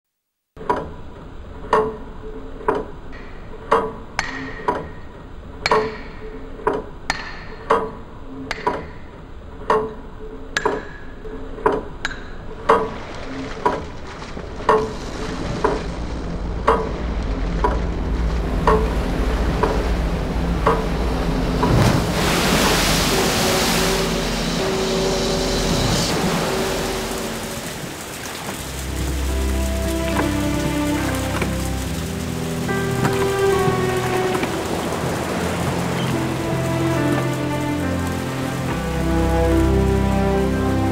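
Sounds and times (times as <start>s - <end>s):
wind: 0.6s - 40.9s
sea waves: 12.4s - 40.9s
pendulum clock ticking: 16.6s - 18.0s, 18.6s - 21.8s.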